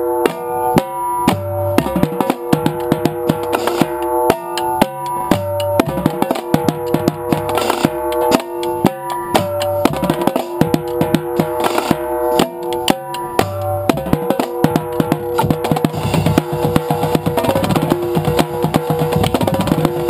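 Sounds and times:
cymbal crash: 0.0 - 20.0
tenor drums with mallets: 0.0 - 20.0
bass drums: 0.3 - 20.0.

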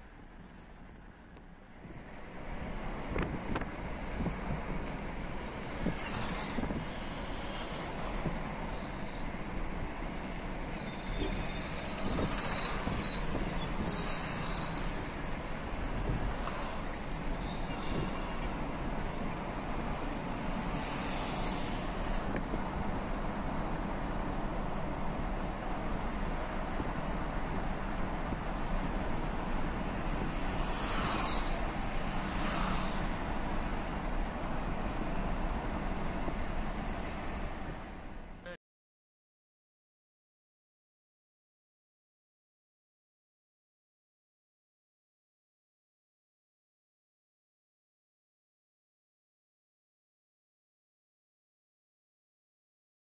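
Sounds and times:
traffic passing: 0.0 - 38.5
road and wind noise in car: 0.0 - 38.6.

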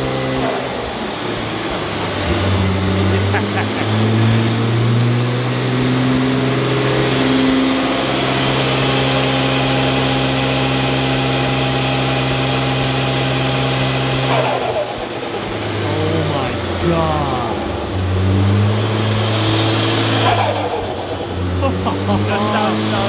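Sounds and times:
car engine running on dyno: 0.0 - 23.0.

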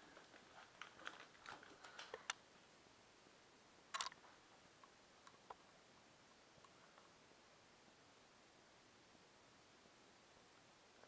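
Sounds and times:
camera handling clicks and rustles: 3.9 - 4.2.

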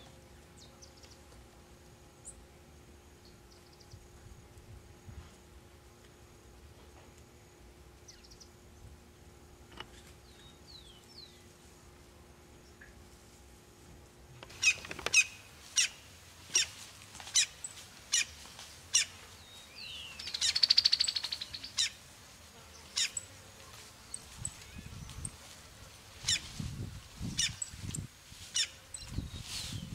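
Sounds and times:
small bird chirps: 19.8 - 22.0.

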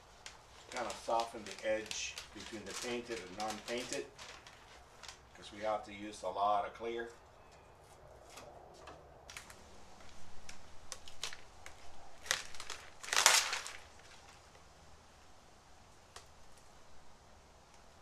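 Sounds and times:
masking tape ripping: 0.2 - 5.4, 9.3 - 14.7.

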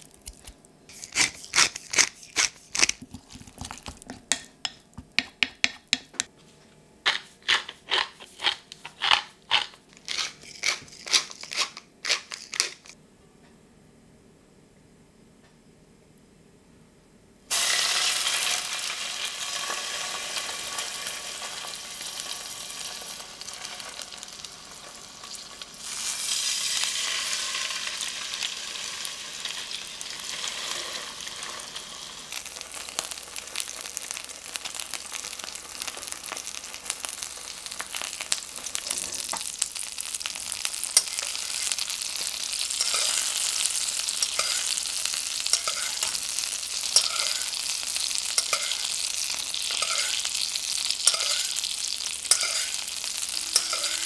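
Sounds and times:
fish sizzling in frying pan: 17.5 - 54.0.

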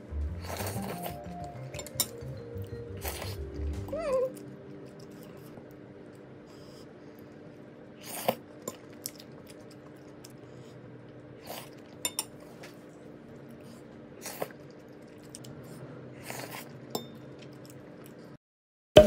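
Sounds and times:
faint steady hum: 0.0 - 18.4
fork clinking on a plate: 12.0 - 12.3.

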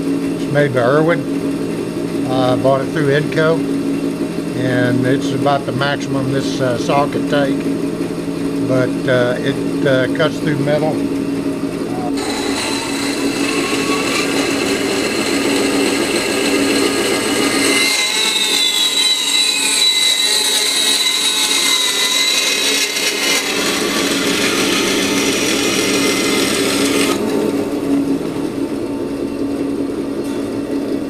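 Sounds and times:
bandsaw running hum: 0.0 - 31.0
high whine sliding down: 11.8 - 31.0.

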